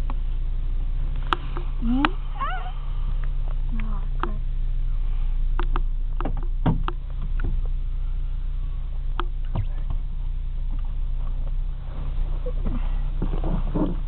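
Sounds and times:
car engine and tyre drone: 0.0 - 14.0
car knocking over rough ground: 5.8 - 7.8.

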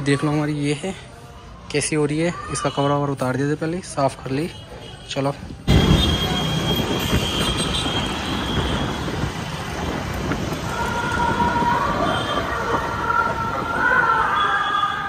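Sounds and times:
road noise: 0.0 - 15.0
wind buffeting microphone: 5.6 - 15.0.

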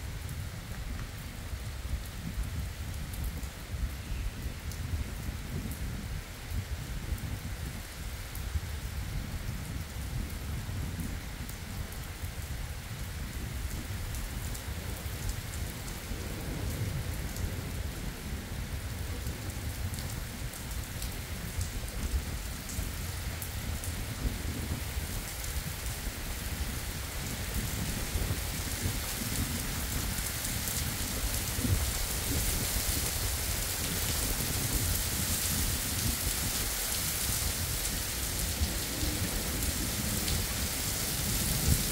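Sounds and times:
heavy rain on asphalt: 0.0 - 41.9
thunder rumble: 14.7 - 22.9, 37.5 - 41.9.

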